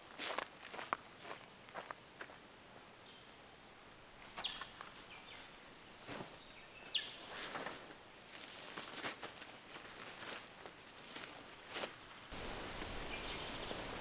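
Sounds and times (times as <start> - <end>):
crunching rustles on ground: 4.2 - 14.0
faint bird chirps: 4.3 - 7.3, 13.1 - 13.9.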